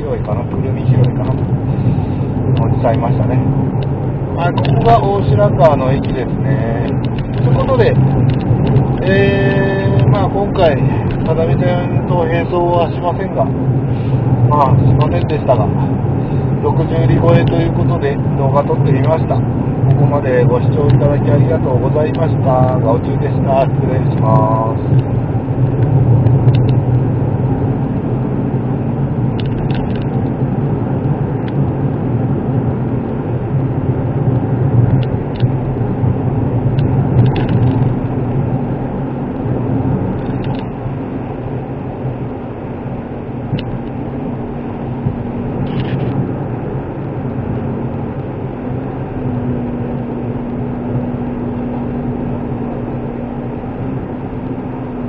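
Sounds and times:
car engine humming: 0.0 - 55.0
road and tyre noise: 0.0 - 55.0
faint light ticks: 26.5 - 26.8.

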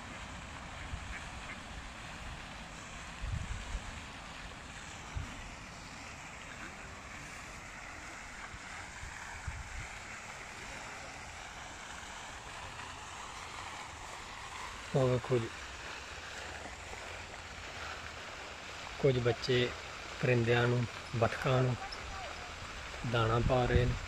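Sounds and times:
wind buffeting microphone: 3.0 - 4.0, 8.6 - 10.0, 21.8 - 24.0
wind noise: 3.1 - 4.0, 9.0 - 10.0, 23.0 - 24.0.

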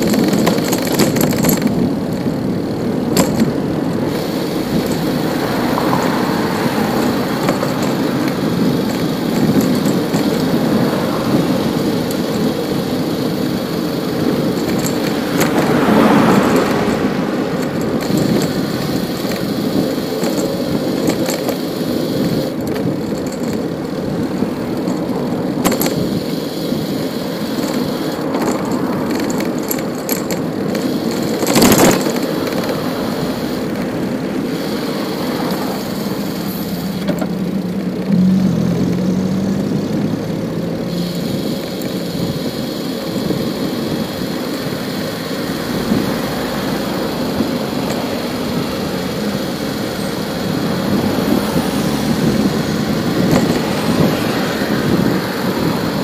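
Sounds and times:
city street traffic: 0.0 - 56.0
vehicle passing: 3.4 - 41.4, 44.4 - 56.0.

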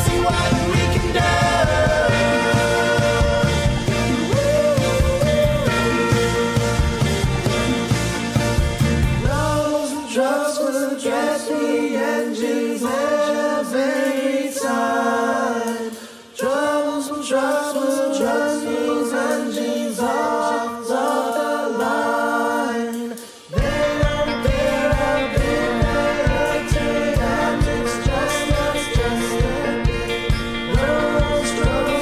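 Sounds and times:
group chanting song phrases: 0.0 - 6.8, 9.3 - 32.0
band with bass and beat: 0.0 - 9.8, 23.5 - 32.0.

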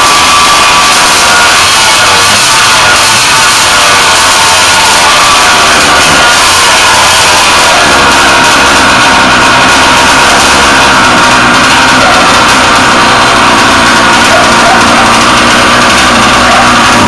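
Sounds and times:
two-stroke engine running: 0.0 - 17.0.

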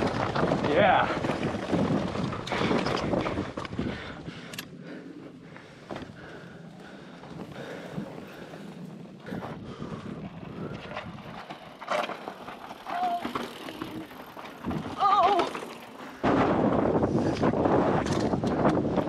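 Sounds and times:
tyres rolling over gravel: 0.0 - 4.2, 5.3 - 19.0
wind buffeting microphone: 0.0 - 4.6, 16.2 - 19.0
bike rattling: 0.0 - 19.0.

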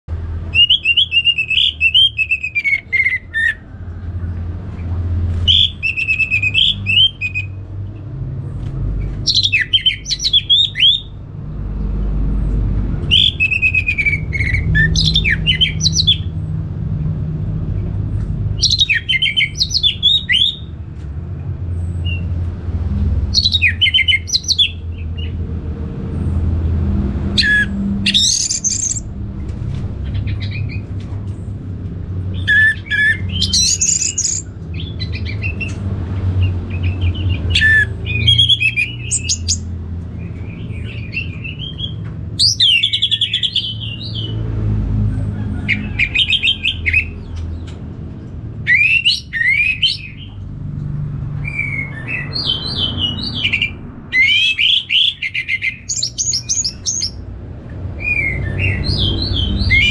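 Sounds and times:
thrush singing whistles and trills: 0.5 - 3.7, 5.3 - 7.6, 9.2 - 11.2, 13.0 - 16.3, 18.6 - 20.7, 23.3 - 25.3, 27.3 - 29.1, 32.3 - 35.8, 36.4 - 44.3, 48.6 - 50.3, 51.4 - 57.2, 58.0 - 59.9.

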